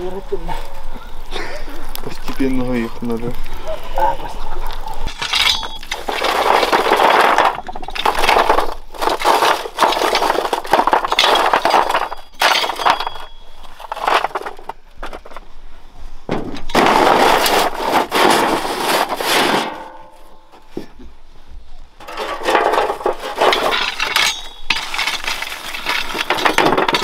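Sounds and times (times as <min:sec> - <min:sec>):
ore clattering and scraping on metal: 0:05.0 - 0:15.4, 0:16.3 - 0:20.6, 0:22.0 - 0:27.0.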